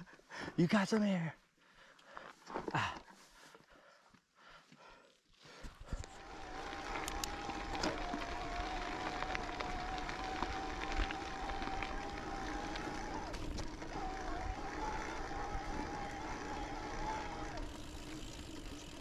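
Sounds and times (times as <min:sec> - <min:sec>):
bike rattles and clicks: 0:05.3 - 0:19.0
bike freehub whine: 0:05.4 - 0:19.0
tyres rolling on dirt: 0:05.8 - 0:19.0.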